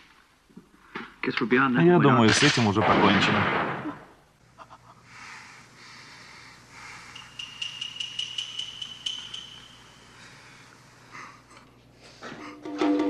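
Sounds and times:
thin high ringing tone: 6.9s - 10.3s.

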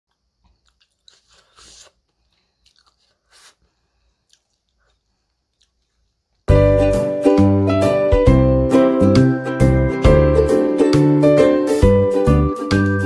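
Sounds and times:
person chewing: 0.1s - 6.4s
slurping soup: 0.7s - 5.8s
music: 6.5s - 13.0s.

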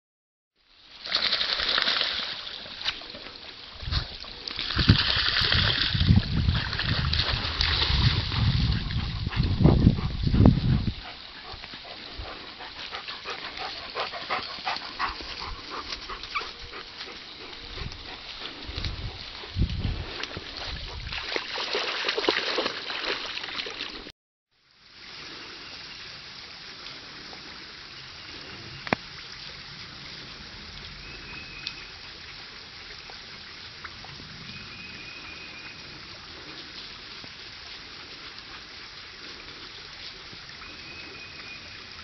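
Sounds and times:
dog splashing through water: 1.0s - 10.4s, 12.6s - 24.1s.

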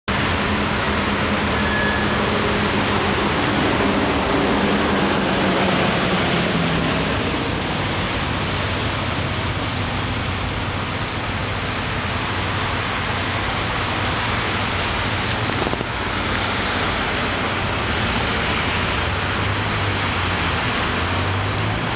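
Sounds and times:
engine hum: 0.1s - 21.9s
tyre noise of passing traffic: 0.1s - 21.9s.

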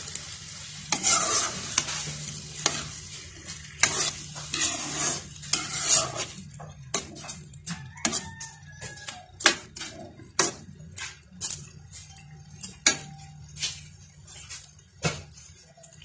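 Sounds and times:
metal spoon scraping a wok: 0.0s - 16.0s.

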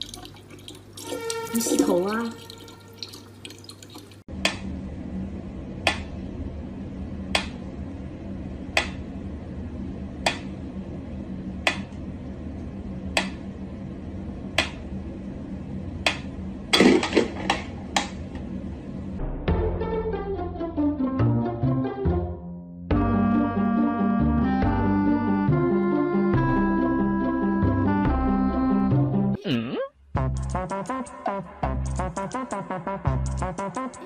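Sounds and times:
steady low hum: 4.2s - 19.4s.

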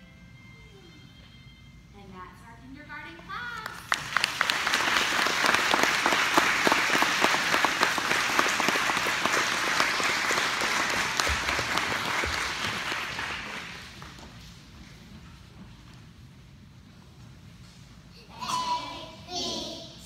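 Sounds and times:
audience applauding: 3.9s - 14.2s.

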